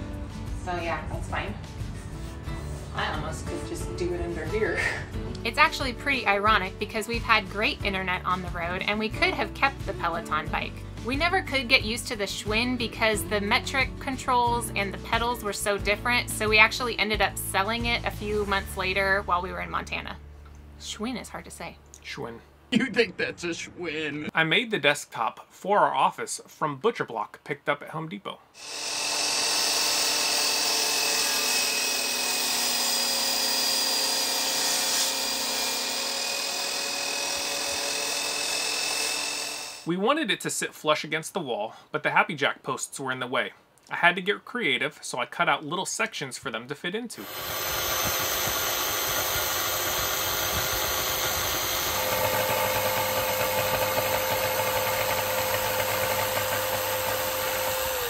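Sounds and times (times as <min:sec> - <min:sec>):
miter saw cutting wood: 0:28.6 - 0:39.9, 0:47.2 - 0:58.0.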